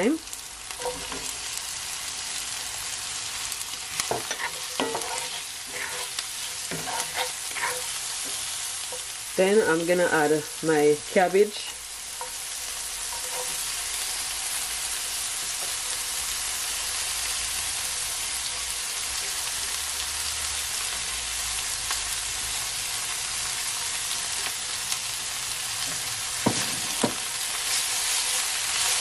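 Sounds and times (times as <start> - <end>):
vegetables sizzling in a pan: 0.0 - 29.0.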